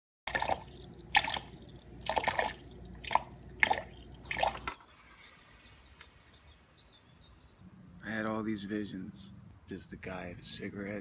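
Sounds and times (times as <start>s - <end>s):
water dripping: 0.3s - 4.8s.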